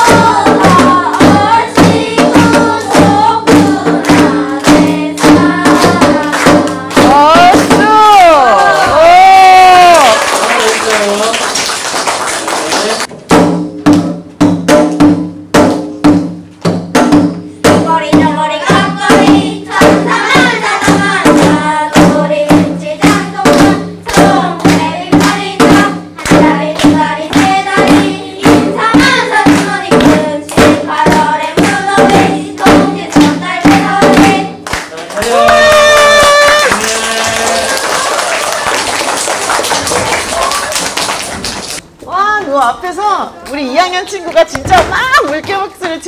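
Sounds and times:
children's choir singing: 0.0 - 7.2, 17.7 - 34.7.

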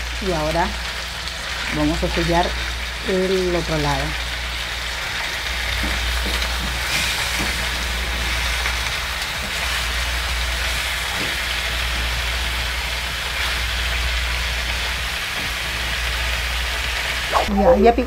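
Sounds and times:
chicken sizzling in hot oil: 0.0 - 17.4.

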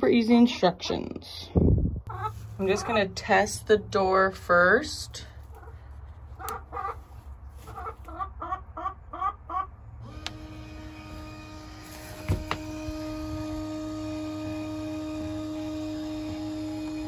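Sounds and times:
hens clucking: 2.0 - 3.7, 5.1 - 10.4
coop door motor humming: 10.0 - 17.0.

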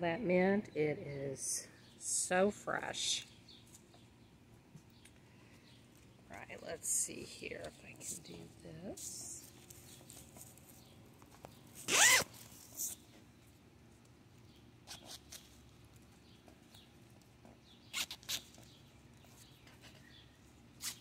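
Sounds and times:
zipper being pulled: 11.8 - 13.0, 17.9 - 18.5.

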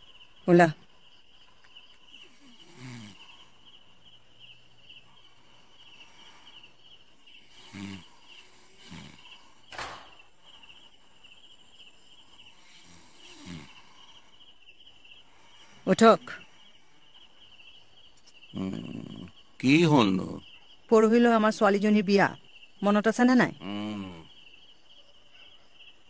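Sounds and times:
crickets chirping: 0.0 - 26.0
sharp knock: 9.7 - 10.2.

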